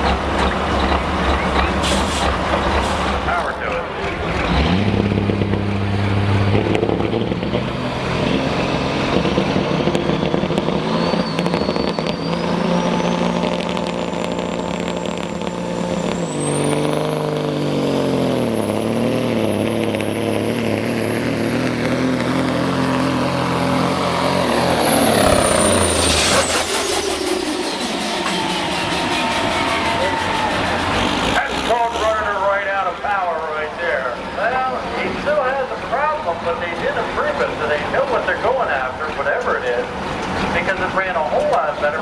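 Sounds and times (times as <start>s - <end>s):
diesel truck engine under load: 0.0s - 42.0s
turbo whistle: 9.9s - 16.8s, 24.2s - 31.0s.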